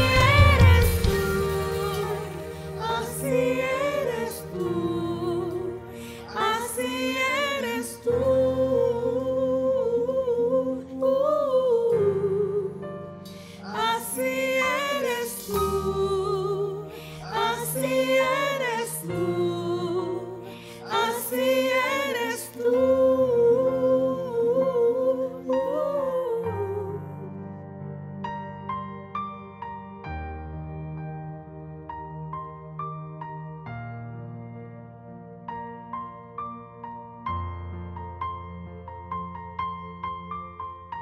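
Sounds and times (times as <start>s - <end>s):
slow worship song with band: 0.0s - 27.4s.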